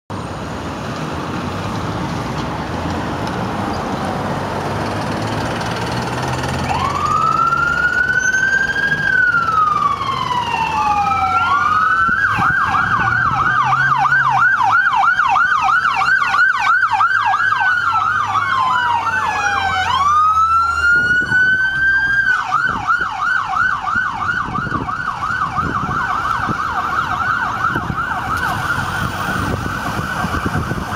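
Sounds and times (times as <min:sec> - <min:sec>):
passing road traffic: 0:00.1 - 0:30.9
two-tone siren wailing and yelping: 0:06.6 - 0:30.9.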